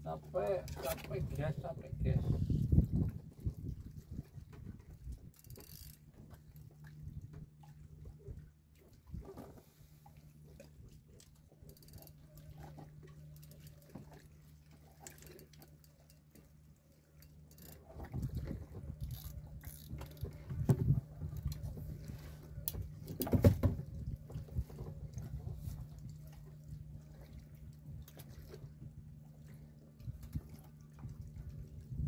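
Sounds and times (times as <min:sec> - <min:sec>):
faint water sounds: 0:00.0 - 0:32.0
low steady hum: 0:00.0 - 0:32.0
low knocks and rumbling: 0:20.0 - 0:26.2.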